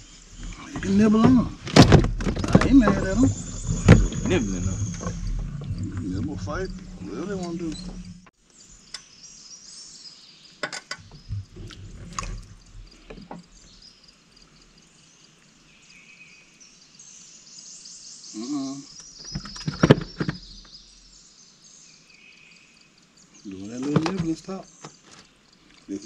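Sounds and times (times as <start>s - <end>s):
birds chirping: 0.0s - 26.0s
insects chirping: 0.0s - 26.0s
sharp clicks and knocks: 0.4s - 8.2s.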